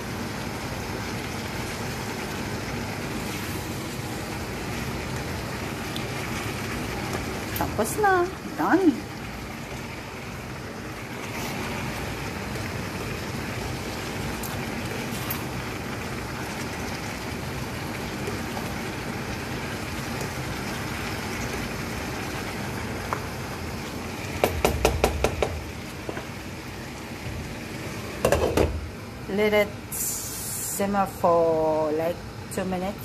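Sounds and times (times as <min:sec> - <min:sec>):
food sizzling in a frying pan: 0:00.0 - 0:33.0
utensil knocking against pan: 0:24.4 - 0:25.6, 0:28.2 - 0:28.8.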